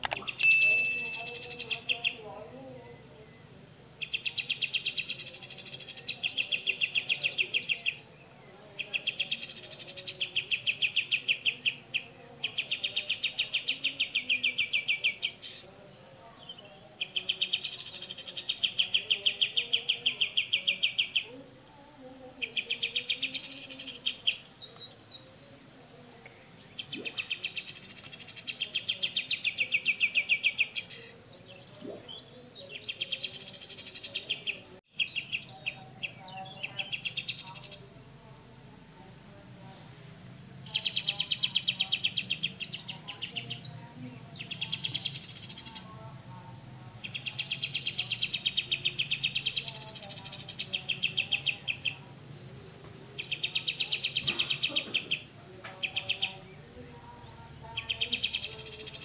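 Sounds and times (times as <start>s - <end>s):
bird harsh ticking call: 0.0s - 2.2s, 44.4s - 45.9s.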